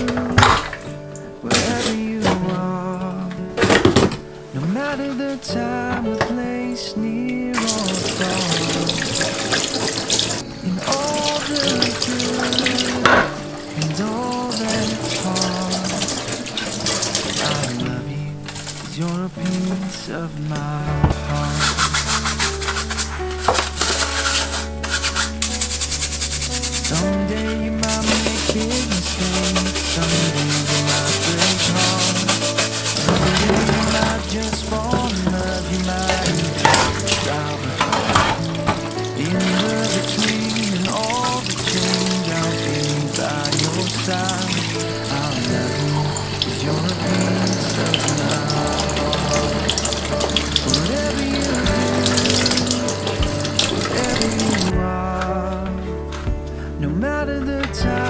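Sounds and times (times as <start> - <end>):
water splashing into steel sink: 0.0 - 2.4, 7.6 - 17.9, 27.8 - 54.7
background music: 0.0 - 58.0
brush scrubbing metal mesh: 21.4 - 54.7.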